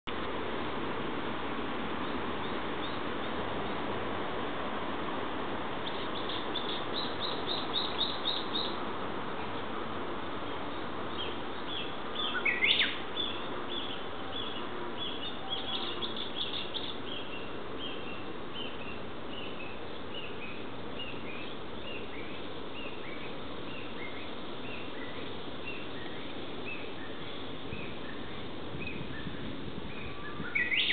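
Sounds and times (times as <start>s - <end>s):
steady background hiss: 0.1s - 30.9s
high bird twittering: 11.1s - 19.6s, 30.0s - 30.9s.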